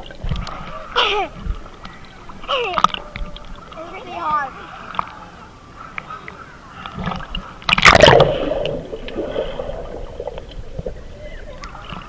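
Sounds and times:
muffled bubbly underwater wash: 0.0 - 12.0
loud splash into water: 7.7 - 10.2.

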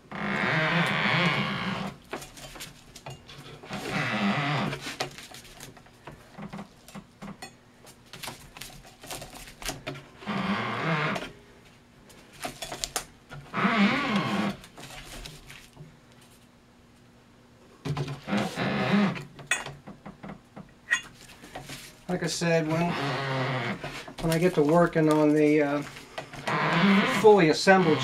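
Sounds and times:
string rubbing and creaking: 3.3 - 5.5, 18.2 - 19.2, 20.9 - 28.0.

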